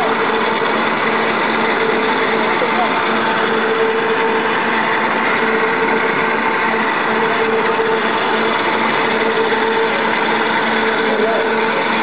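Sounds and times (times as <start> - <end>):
extruder machine humming: 0.0 - 12.0
motor whine: 0.0 - 12.0.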